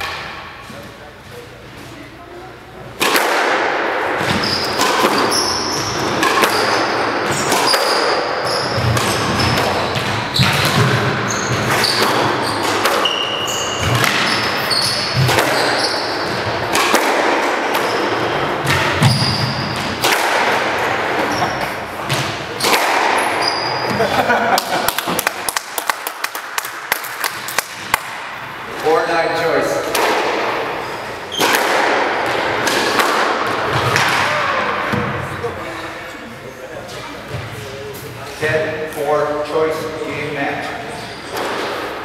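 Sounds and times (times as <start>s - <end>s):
squash ball smacking: 3.0s - 21.3s, 22.0s - 24.0s, 24.6s - 28.4s, 29.8s - 30.7s, 31.3s - 35.2s
sneakers squeaking on court: 4.2s - 16.7s, 17.8s - 20.0s, 21.2s - 24.1s.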